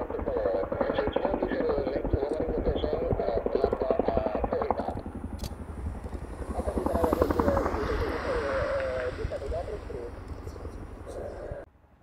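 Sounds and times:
helicopter rotor blades chopping: 0:00.0 - 0:11.7
turbine engine whine: 0:00.0 - 0:12.0.

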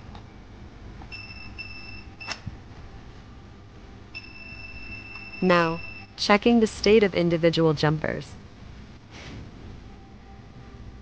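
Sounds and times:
meter continuity beeps: 0:01.1 - 0:02.4, 0:04.1 - 0:06.2.

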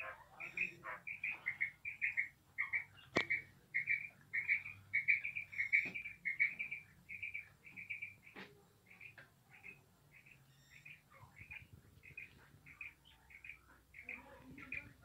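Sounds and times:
quail chirping: 0:00.0 - 0:15.0.

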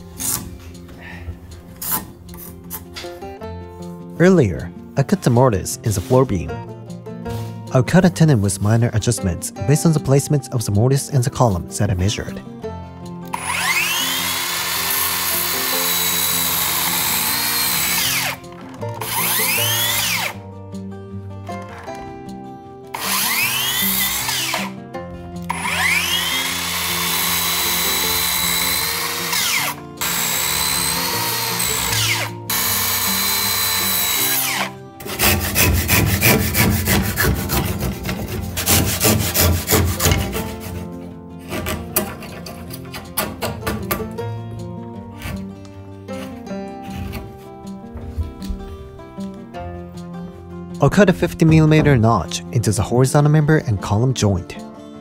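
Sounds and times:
handsaw cutting: 0:00.0 - 0:00.6, 0:01.8 - 0:03.0, 0:13.3 - 0:20.4, 0:23.0 - 0:24.8, 0:25.5 - 0:44.0, 0:45.2 - 0:47.5
background music: 0:00.0 - 0:55.0
circular saw cutting wood: 0:13.3 - 0:20.4, 0:22.9 - 0:24.8, 0:25.4 - 0:44.1.

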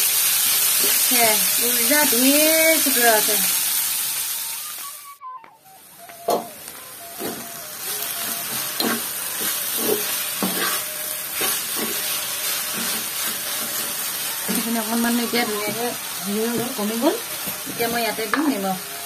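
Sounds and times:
greens sizzling in oil: 0:00.0 - 0:19.0
spatula scraping metal pan: 0:08.2 - 0:18.5.

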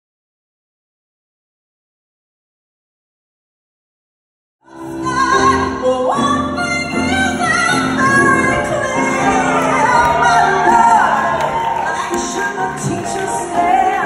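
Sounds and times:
grand piano accompaniment: 0:04.7 - 0:14.0
woman singing: 0:04.7 - 0:14.0.

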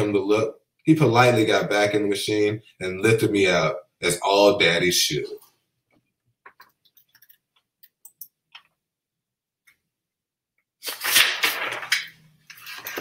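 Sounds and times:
small taps and clicks: 0:05.9 - 0:08.8
book pages turning: 0:10.8 - 0:13.0
paper rustling: 0:10.8 - 0:13.0.

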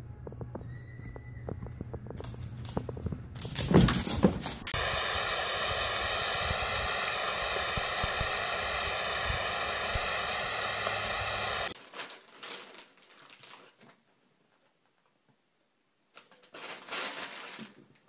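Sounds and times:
garden hose spraying mist: 0:04.6 - 0:11.8.

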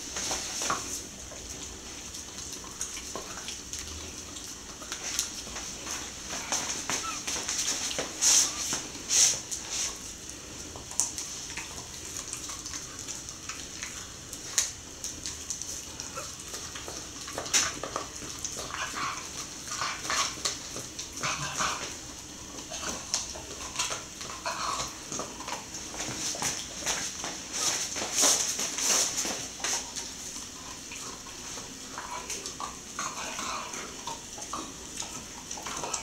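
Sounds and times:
dog gnawing and crunching bone: 0:00.0 - 0:36.0.

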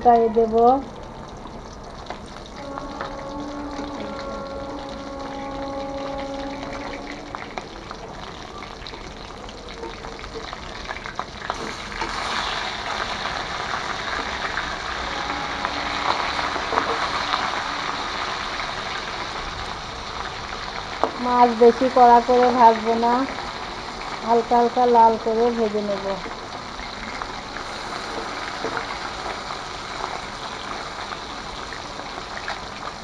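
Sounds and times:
fish sizzling in hot oil: 0:00.0 - 0:33.0
steady pitched tone: 0:01.0 - 0:10.6, 0:12.6 - 0:24.7
spatula scraping wok: 0:11.5 - 0:19.4.

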